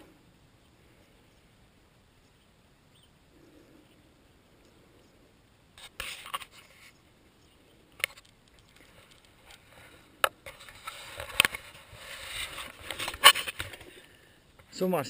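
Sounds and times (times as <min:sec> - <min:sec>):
rubbing rustle: 0:05.8 - 0:07.1, 0:08.0 - 0:14.1.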